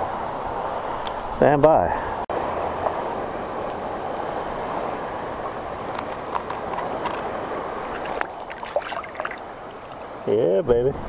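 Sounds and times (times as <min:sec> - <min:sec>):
water sloshing and lapping: 0:05.4 - 0:10.3.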